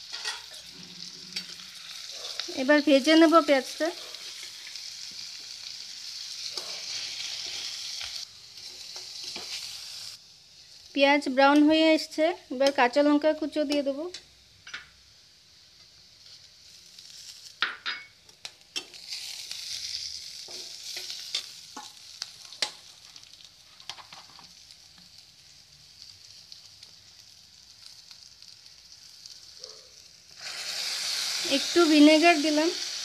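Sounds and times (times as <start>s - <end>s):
metal spatula scraping pan: 0.0s - 1.7s
onions sizzling in oil: 0.0s - 33.0s.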